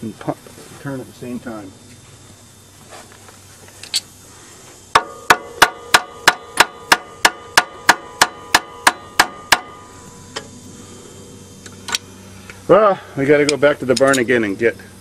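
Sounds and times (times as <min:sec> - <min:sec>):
hammer striking metal: 0:04.9 - 0:10.0.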